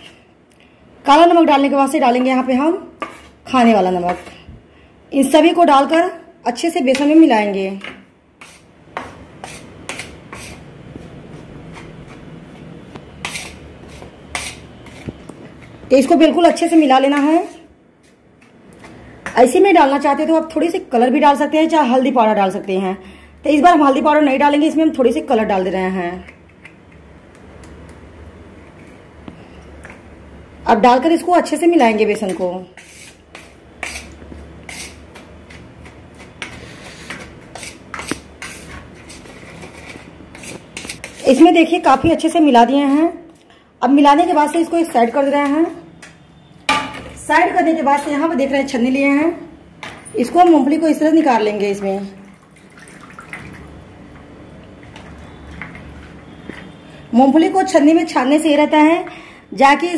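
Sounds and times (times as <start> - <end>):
hand rubbing flour on plate: 9.4 - 15.8, 17.2 - 18.2, 32.8 - 41.7
spoon scraping a steel plate: 13.2 - 15.7, 17.2 - 17.7, 32.2 - 35.6, 36.2 - 41.7.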